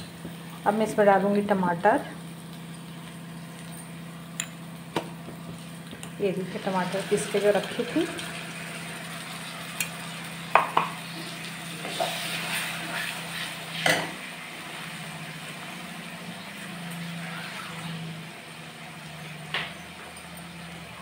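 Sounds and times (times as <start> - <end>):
soft sizzle: 0.0 - 21.0
metal spatula scraping a pan: 11.8 - 14.0.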